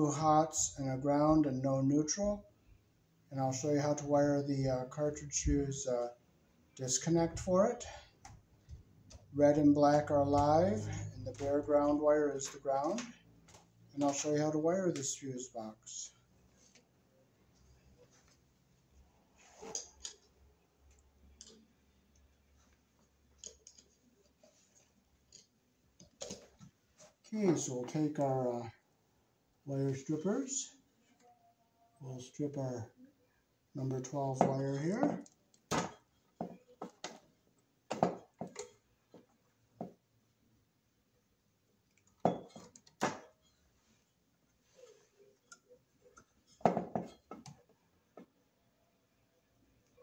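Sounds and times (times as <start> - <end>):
wire strippers clicking and snipping: 23.3 - 24.4.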